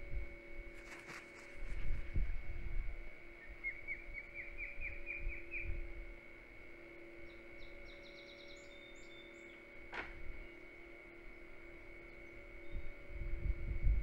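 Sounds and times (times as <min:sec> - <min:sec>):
wing rustle and flutter: 0:00.7 - 0:02.6
osprey whistled chirps: 0:03.4 - 0:05.8, 0:07.1 - 0:09.8, 0:12.0 - 0:13.1.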